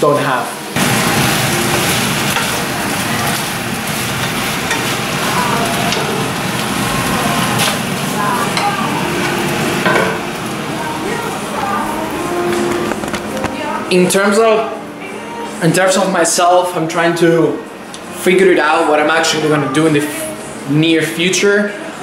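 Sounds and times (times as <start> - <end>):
food sizzling in a frying pan: 0.0 - 13.4.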